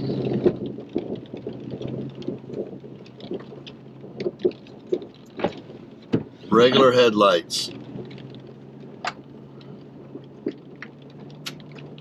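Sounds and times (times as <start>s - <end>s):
vehicle knocking over ruts: 0.0s - 6.8s
vehicle engine hum: 0.0s - 12.0s.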